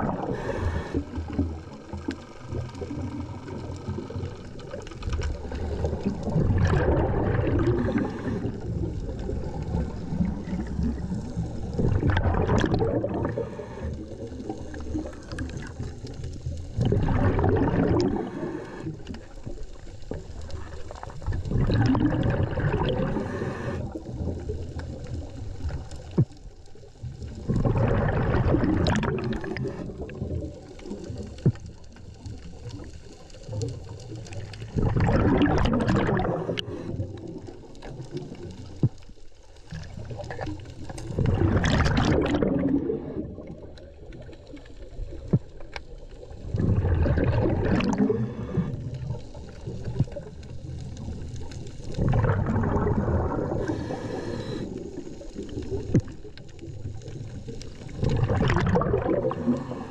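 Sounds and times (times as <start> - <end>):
exhaled bubbles underwater: 0.0 - 59.9
regulator inhale hiss: 0.2 - 1.4, 7.8 - 8.7, 13.3 - 14.8, 18.1 - 19.3, 23.0 - 24.2, 36.4 - 37.2, 47.9 - 50.0, 53.5 - 55.4, 59.3 - 59.9.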